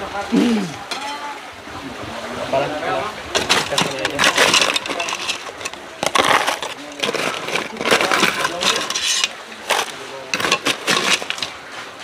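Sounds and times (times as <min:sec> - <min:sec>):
ice cubes scraping and clattering: 0:03.3 - 0:12.0.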